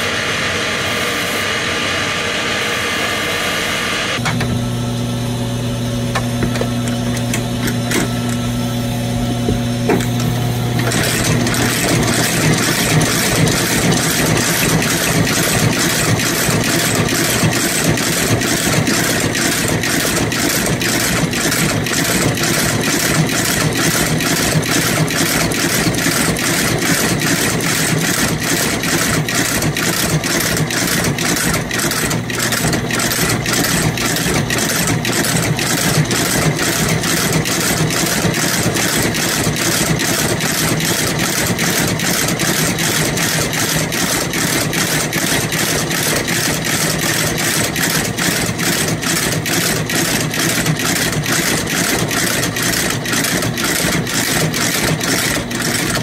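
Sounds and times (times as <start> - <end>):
steady machine hum: 0.0 - 26.8
stitching machine clatter: 7.1 - 8.4, 9.9 - 56.0.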